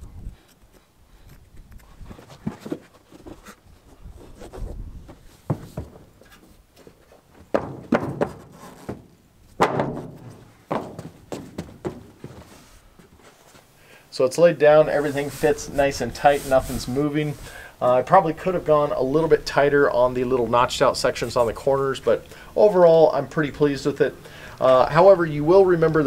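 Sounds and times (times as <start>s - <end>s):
rubber mats thudding in truck bed: 5.1s - 6.4s, 7.4s - 12.6s.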